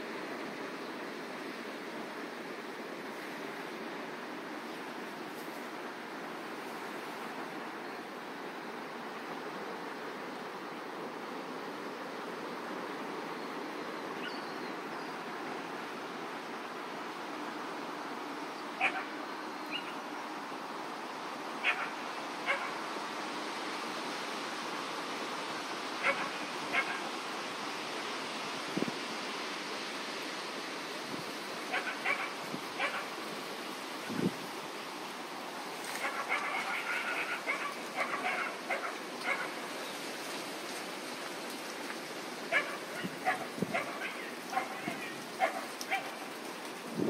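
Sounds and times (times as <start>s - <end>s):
steady background hiss: 0.0s - 47.0s
dog barking: 18.8s - 19.1s, 21.6s - 22.8s, 26.0s - 27.1s, 31.7s - 33.1s, 36.0s - 39.6s, 42.5s - 46.2s.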